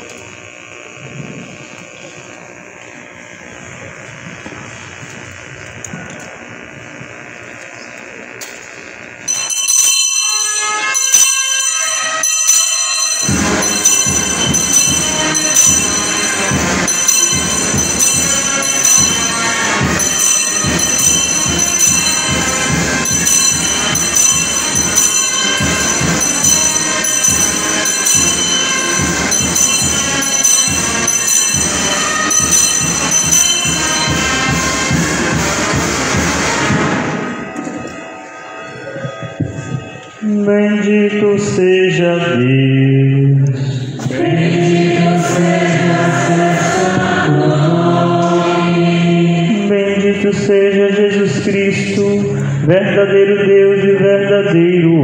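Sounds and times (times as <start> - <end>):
bells ringing rapidly: 9.2 - 42.4, 44.2 - 54.6
lower quick bell strokes: 9.3 - 35.0.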